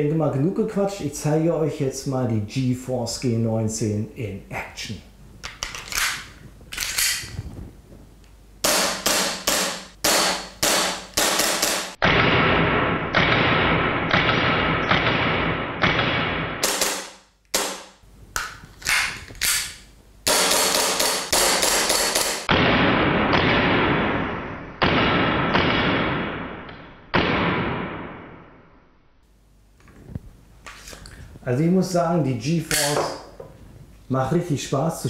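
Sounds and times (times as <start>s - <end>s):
airsoft pistol shots: 8.6s - 18.0s, 20.3s - 28.4s.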